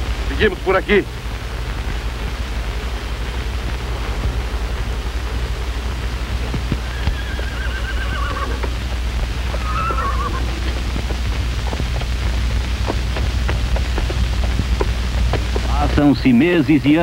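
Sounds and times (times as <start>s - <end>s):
old film soundtrack hum and crackle: 0.0s - 17.0s
horse whinnying: 6.9s - 8.7s, 9.6s - 10.8s.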